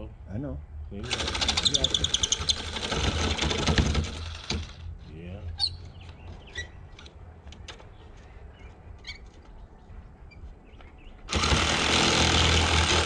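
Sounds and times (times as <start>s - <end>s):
loud power tool running: 1.0s - 4.8s, 11.3s - 13.0s
bird chirps: 5.5s - 7.0s, 7.8s - 11.3s.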